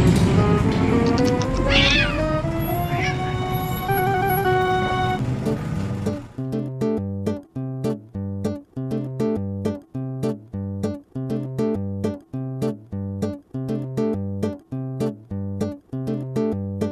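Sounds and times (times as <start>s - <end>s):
plucked acoustic guitar music: 0.0s - 16.9s.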